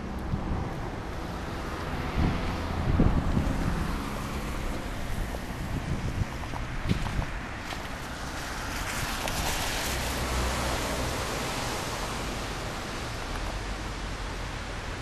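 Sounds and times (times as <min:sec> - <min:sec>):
wind on microphone: 0:00.0 - 0:09.9
street traffic: 0:00.0 - 0:15.0.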